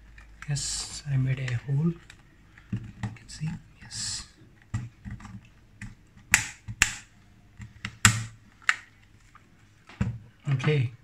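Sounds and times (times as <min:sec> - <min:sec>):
plastic clips snapping: 0:04.6 - 0:09.1.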